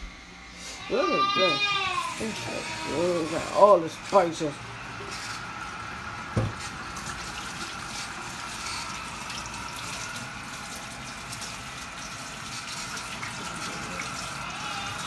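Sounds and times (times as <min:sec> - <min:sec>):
faucet running into sink: 0:06.2 - 0:15.0.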